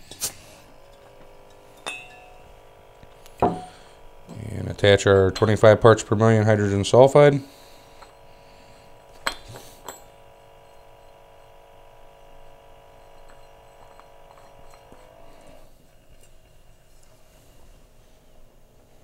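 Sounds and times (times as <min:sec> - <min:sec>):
faint steady hum: 0:00.0 - 0:19.0
light metallic clinks: 0:00.8 - 0:03.9, 0:08.9 - 0:15.6.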